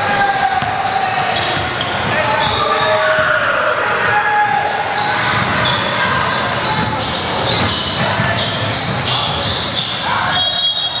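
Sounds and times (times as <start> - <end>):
players' voices: 0.0 - 11.0
shoe squeaks: 4.9 - 11.0.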